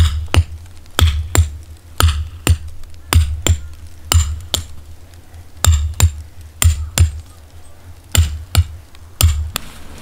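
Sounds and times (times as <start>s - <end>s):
hammer striking metal stake: 0.0s - 4.7s, 5.6s - 7.2s, 8.1s - 9.7s.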